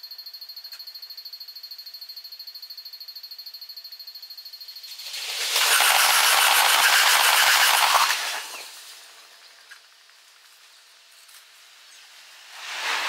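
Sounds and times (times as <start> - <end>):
train wheels clattering fast: 5.1 - 8.6.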